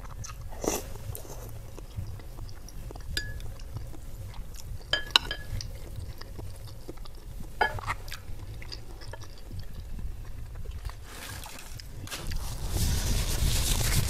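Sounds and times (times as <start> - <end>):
close-miked chewing: 0.0 - 14.0
cutlery clinking against glass bowl: 3.2 - 3.7, 4.9 - 5.8, 7.6 - 8.0.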